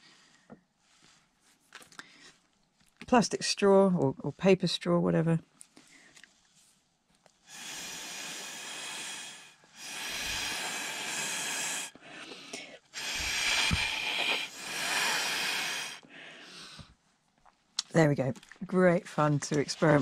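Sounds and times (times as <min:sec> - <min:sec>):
breath blown through a straw: 0:07.4 - 0:16.9.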